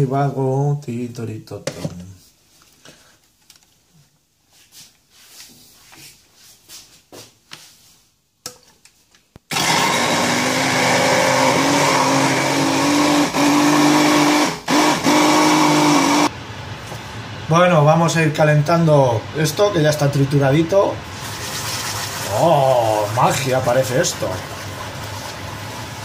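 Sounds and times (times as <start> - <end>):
hand blender motor running: 9.5 - 16.3.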